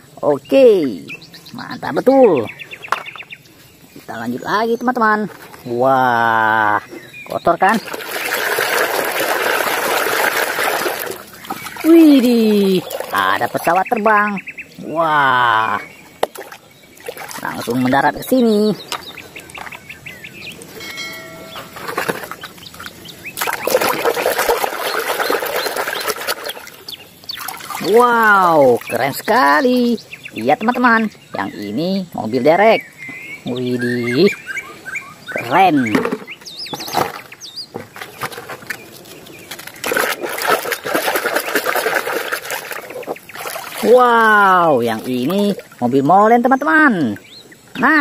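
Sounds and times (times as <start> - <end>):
birds chirping: 0.0 - 48.0
toy splashing in muddy water: 7.6 - 13.7, 16.2 - 17.8, 21.7 - 29.0, 35.9 - 45.8.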